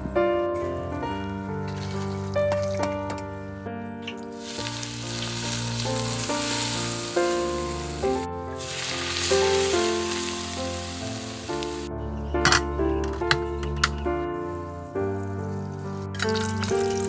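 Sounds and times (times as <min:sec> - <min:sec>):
hot oil sizzling: 0:01.6 - 0:03.2, 0:04.1 - 0:11.9, 0:15.2 - 0:17.0.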